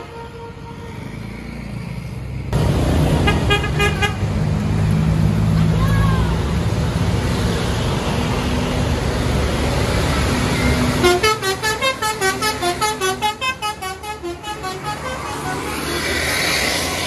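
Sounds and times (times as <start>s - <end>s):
musical bus horn playing tune: 0.0s - 1.1s, 3.1s - 4.3s, 10.9s - 16.2s
traffic and engines passing: 0.0s - 17.0s.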